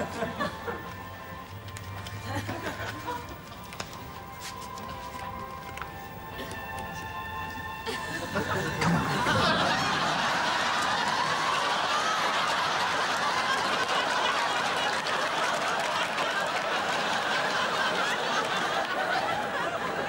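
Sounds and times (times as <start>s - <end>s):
audience laughing: 0.0s - 1.4s, 2.0s - 3.5s, 7.7s - 20.0s.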